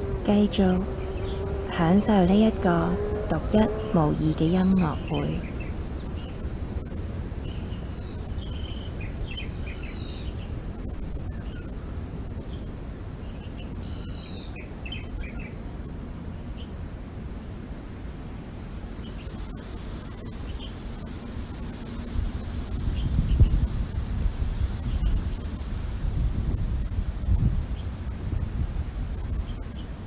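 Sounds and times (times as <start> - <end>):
insects trilling: 0.0 - 30.0
low background hum: 0.0 - 30.0.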